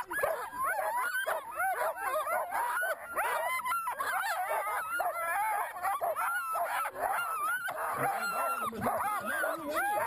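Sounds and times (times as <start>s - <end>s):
dogs barking and yipping: 0.0s - 10.0s.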